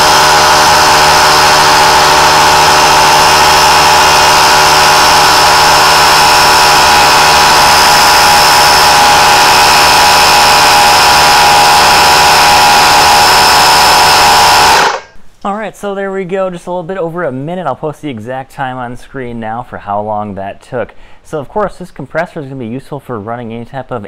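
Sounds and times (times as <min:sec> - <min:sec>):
air compressor running: 0:00.0 - 0:15.2.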